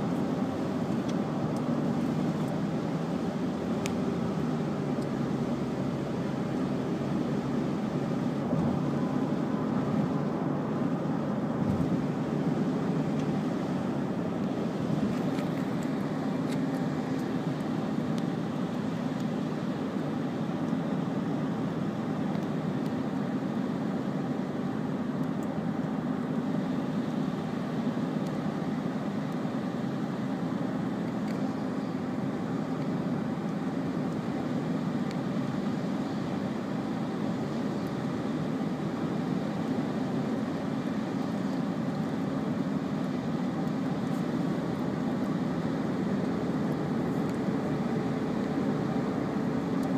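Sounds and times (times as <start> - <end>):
car engine and road drone: 0.0 - 49.9.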